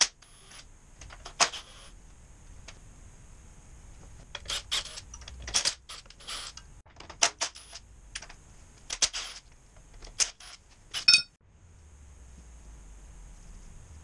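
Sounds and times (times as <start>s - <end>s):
metallic clicks and clinks: 10.0s - 11.4s.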